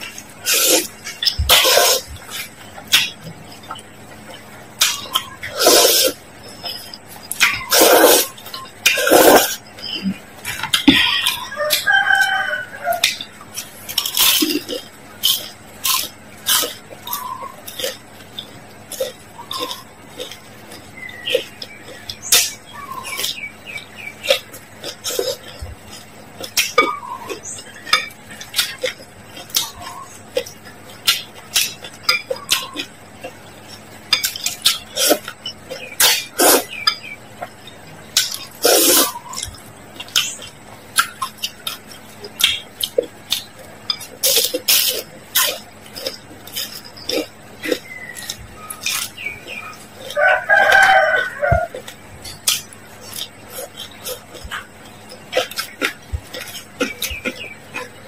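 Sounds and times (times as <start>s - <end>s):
noodles slurped and chewed: 0.0s - 11.4s, 12.2s - 36.8s, 37.8s - 58.0s
mouth clicks and smacks: 13.0s - 50.2s, 51.7s - 58.0s.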